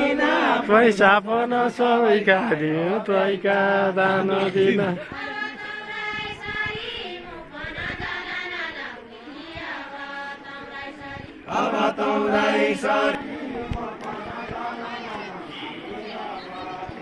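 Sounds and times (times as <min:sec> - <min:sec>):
group singing in unison: 0:00.0 - 0:17.0.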